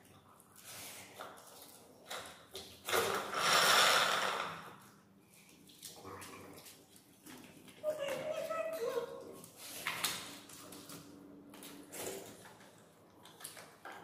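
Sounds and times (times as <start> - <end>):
faint eating noises: 4.7 - 14.0.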